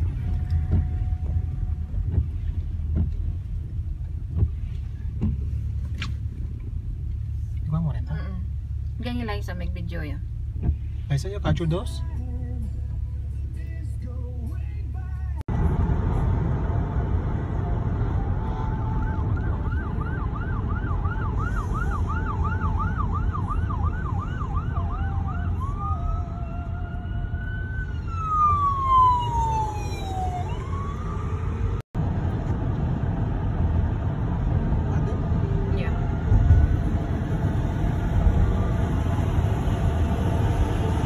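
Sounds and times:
car engine and road noise: 0.0s - 41.0s
emergency vehicle sirens: 16.8s - 32.7s.

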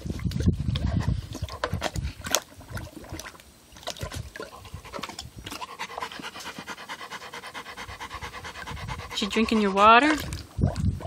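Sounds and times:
dog lapping water from bowl: 0.0s - 11.0s
dog panting: 4.6s - 10.4s.

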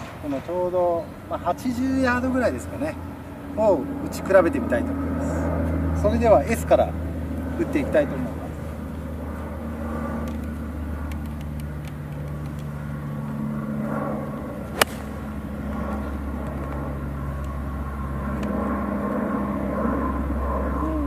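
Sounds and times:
steady low drone: 0.0s - 21.0s
golf club striking ball: 14.7s - 15.4s.

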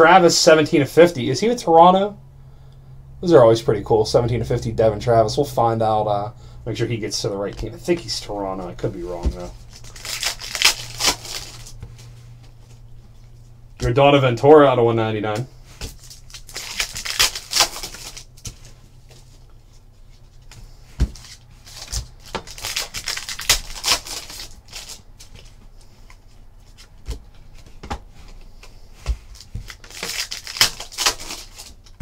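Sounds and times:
foil wrapper crinkling: 8.8s - 11.8s, 15.8s - 25.6s, 29.3s - 32.0s.

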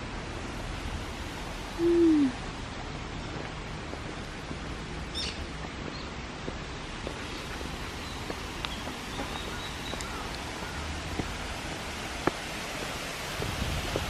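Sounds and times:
waterfall rushing: 6.3s - 14.0s.

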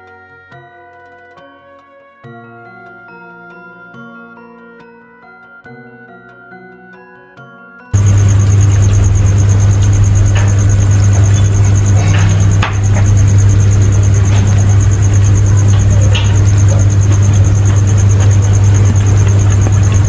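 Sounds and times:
insect trilling: 8.0s - 20.0s
low mechanical drone: 8.0s - 20.0s.

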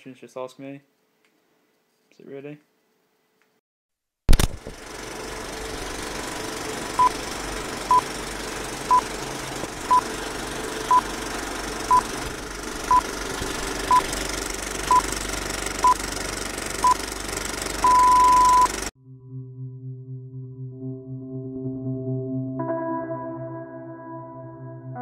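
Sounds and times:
short high beeps: 17.8s - 18.8s.

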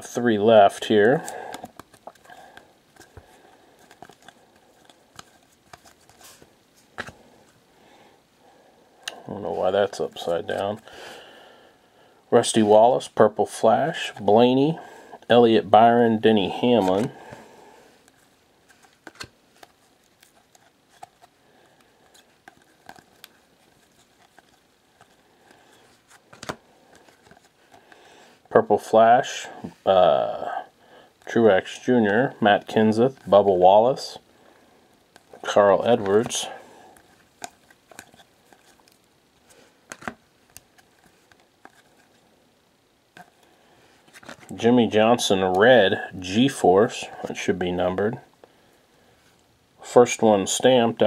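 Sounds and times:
cards rustling and clicking: 0.1s - 7.6s, 9.0s - 10.9s, 15.2s - 28.6s, 35.0s - 42.3s, 43.1s - 47.5s.

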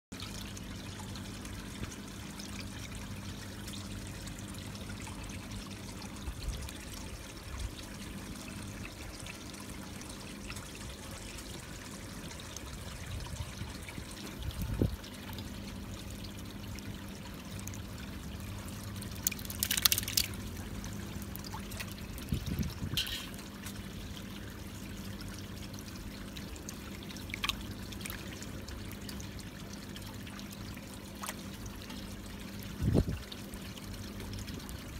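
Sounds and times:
water trickling: 0.1s - 34.9s
low steady hum: 0.2s - 34.9s
splashes and knocks: 19.1s - 20.4s, 21.4s - 23.8s.

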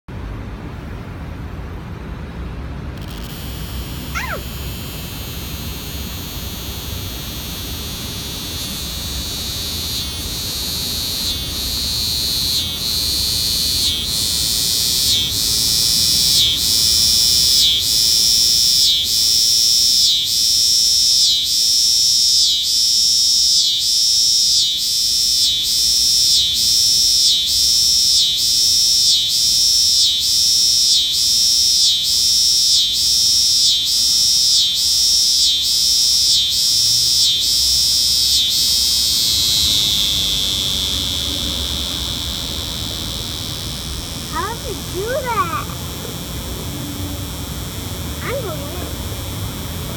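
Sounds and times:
cicada buzzing: 3.0s - 49.9s.

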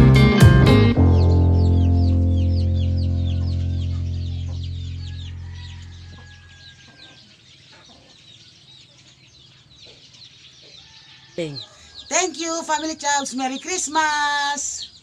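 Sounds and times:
background music chord: 0.0s - 6.1s
chicks peeping: 0.0s - 15.0s.

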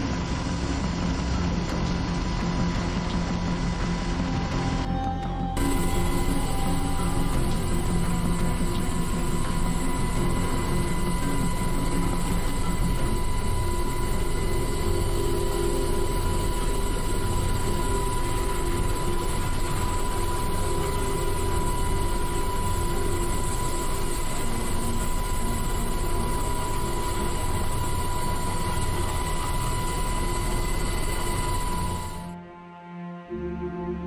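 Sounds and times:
helicopter engine and rotor noise: 0.0s - 32.4s
constant high whine: 0.0s - 32.6s.

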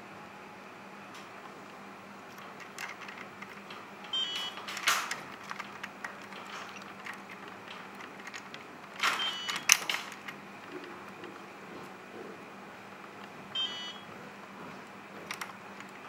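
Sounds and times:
small metal parts clicking on metal: 2.3s - 11.4s, 15.2s - 16.0s.

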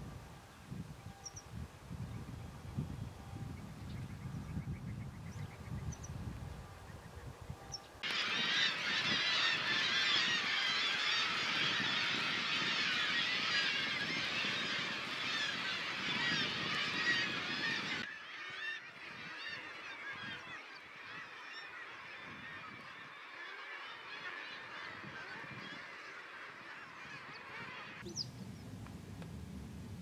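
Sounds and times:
chorus of birds calling: 8.0s - 28.3s.

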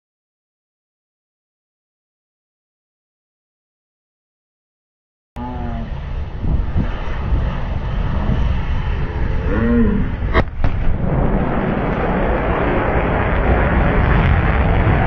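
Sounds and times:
jet rumble: 5.4s - 15.0s
sonic boom pop: 10.3s - 14.5s.

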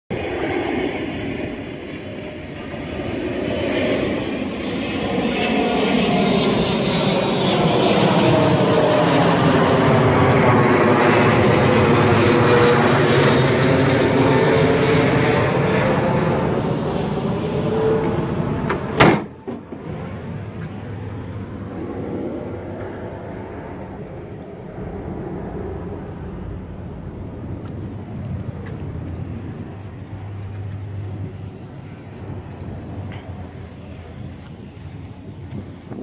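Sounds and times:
pickup engine running: 25.2s - 36.0s.

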